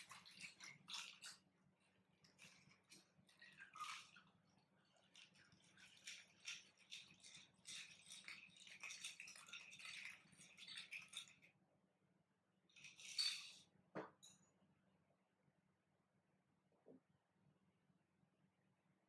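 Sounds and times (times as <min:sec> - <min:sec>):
ice rattling in shaker: 0:00.0 - 0:01.5, 0:02.2 - 0:11.5, 0:12.7 - 0:13.6
liquid trickling: 0:00.0 - 0:11.5.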